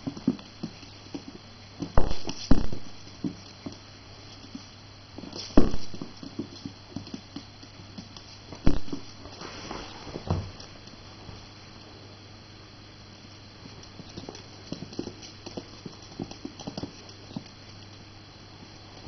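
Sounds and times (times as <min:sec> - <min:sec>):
dog claws pattering on wood floor: 0:13.6 - 0:18.0.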